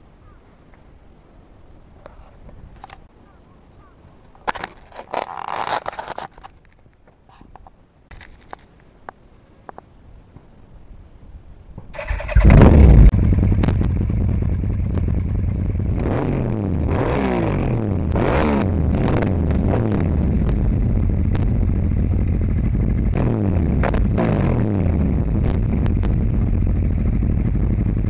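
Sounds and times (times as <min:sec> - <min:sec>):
motorcycle engine revving: 0:12.0 - 0:28.0.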